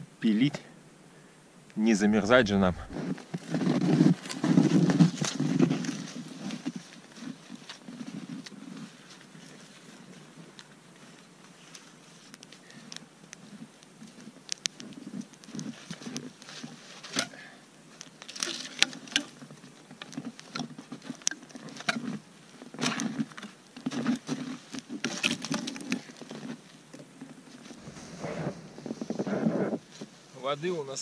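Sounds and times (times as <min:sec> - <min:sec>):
logs knocking and scraping: 0:02.6 - 0:10.7, 0:11.8 - 0:30.2
footsteps crunching in deep snow: 0:02.8 - 0:17.2, 0:27.5 - 0:30.9.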